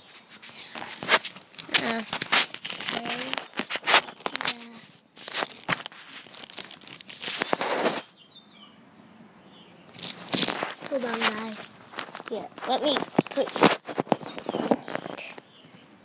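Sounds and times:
phone handling noise: 10.0s - 15.4s.

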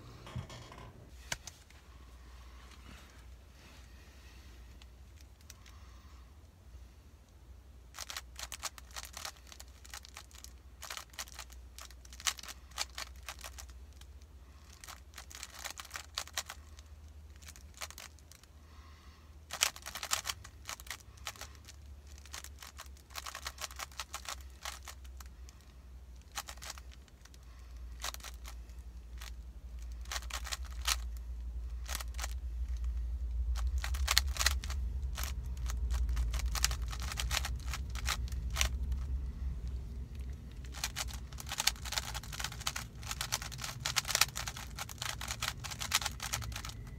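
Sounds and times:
plastic puzzle cube clicking: 7.9s - 14.1s, 14.7s - 18.4s, 19.5s - 25.3s, 26.2s - 27.4s, 28.0s - 31.1s, 31.8s - 32.8s, 33.4s - 39.1s, 40.6s - 46.9s
low rumble: 25.1s - 46.9s.

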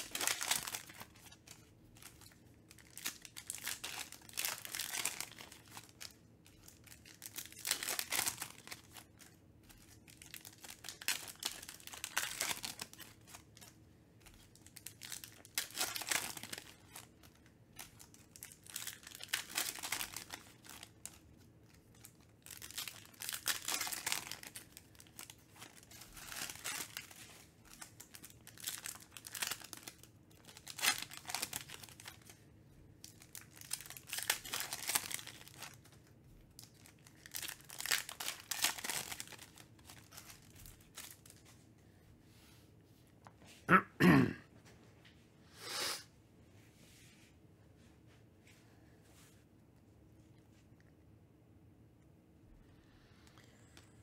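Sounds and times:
wrappers crinkling and tearing: 0.0s - 32.4s, 33.0s - 41.6s.

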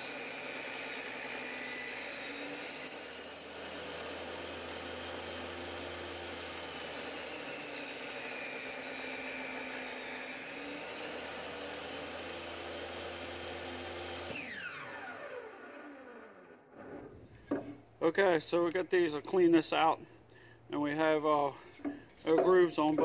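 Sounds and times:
table saw cutting wood: 0.0s - 17.8s.

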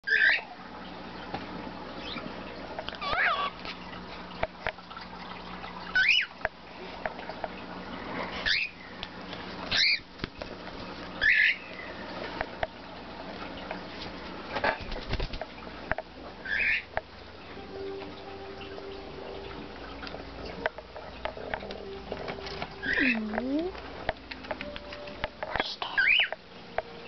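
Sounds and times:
cockatiel chirps: 9.7s - 10.0s, 25.8s - 26.3s.

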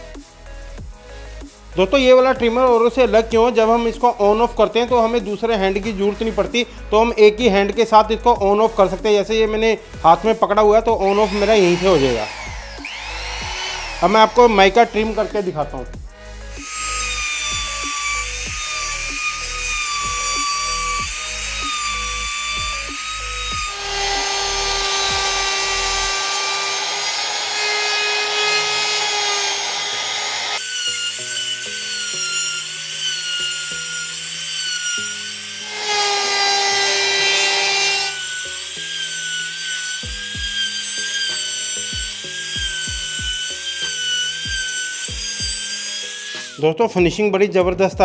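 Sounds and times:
router whining: 0.0s - 46.8s
router bit cutting laminate: 1.4s - 46.7s.

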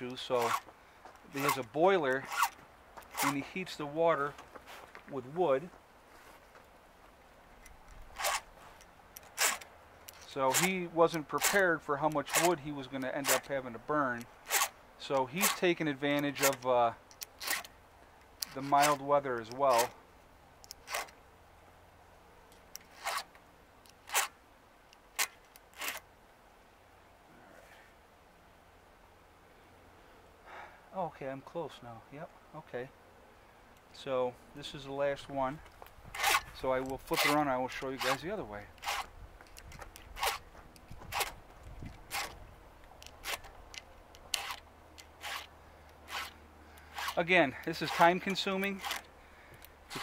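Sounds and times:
file rasping on chainsaw chain: 0.1s - 0.6s, 1.3s - 3.6s, 8.2s - 8.5s, 9.3s - 13.6s, 14.4s - 15.6s, 16.2s - 16.7s, 17.4s - 17.7s, 18.4s - 19.9s, 22.8s - 23.3s, 36.1s - 39.1s, 40.2s - 40.4s, 42.1s - 42.4s, 44.3s - 49.1s.

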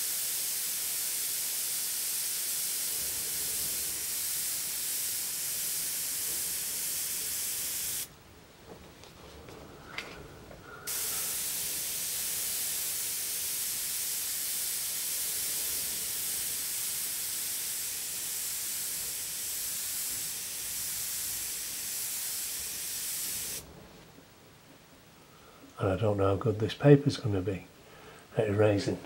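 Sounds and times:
airbrush hissing: 0.0s - 8.1s, 10.8s - 23.6s.

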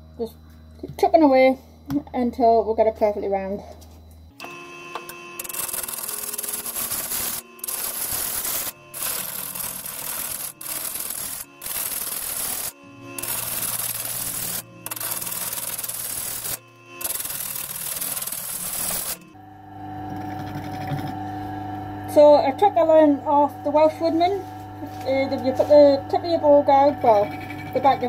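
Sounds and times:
lathe low hum: 4.2s - 28.0s
gouge scraping wood on lathe: 5.0s - 19.3s.

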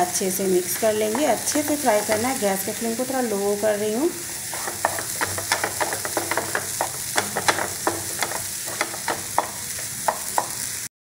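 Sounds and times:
steady sizzle: 0.0s - 10.9s
spatula scraping in frying pan: 0.6s - 2.5s, 4.2s - 10.9s.

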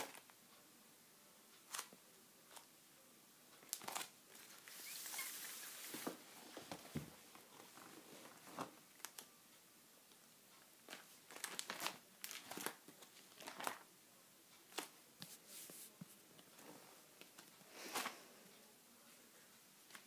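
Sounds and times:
plastic sheet protectors crinkling: 10.9s - 13.9s.

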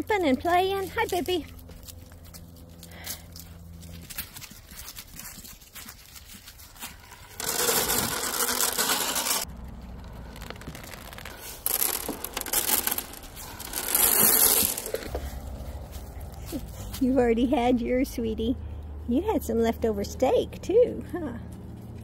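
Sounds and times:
rustling in dry leaves: 1.2s - 17.2s.

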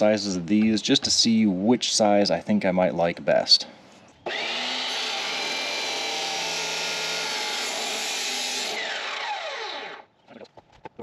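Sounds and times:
chop saw grinding whine: 4.2s - 10.1s.

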